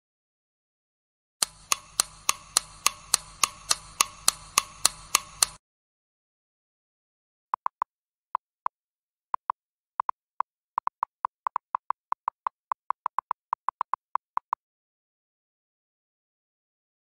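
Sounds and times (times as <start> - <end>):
electronic timer blips: 1.4 - 5.6.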